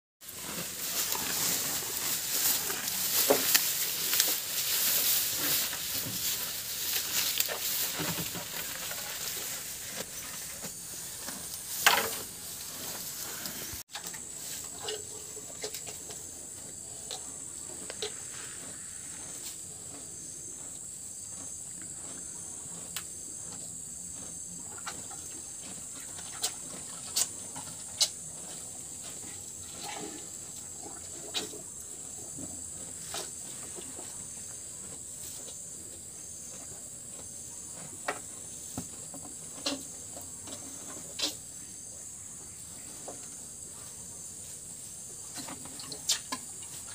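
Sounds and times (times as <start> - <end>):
cattle chewing grass: 0.2 - 41.6
cows slurping from bucket: 0.2 - 41.6, 44.6 - 46.9.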